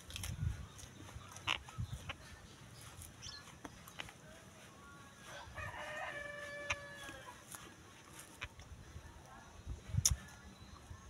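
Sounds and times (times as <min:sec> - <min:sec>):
rooster crowing: 0:05.2 - 0:07.4.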